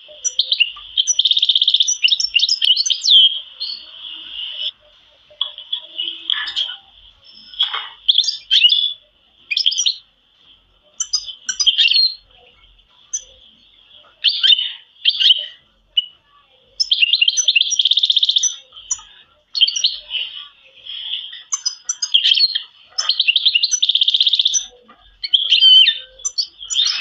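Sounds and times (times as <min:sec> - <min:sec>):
canaries singing and chirping: 0:00.0 - 0:27.0
fast rattling bird trill: 0:16.8 - 0:20.1, 0:21.4 - 0:27.0.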